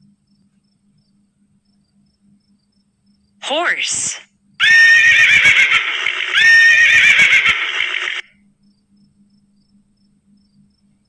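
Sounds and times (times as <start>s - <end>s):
horse neighing: 4.6s - 8.2s.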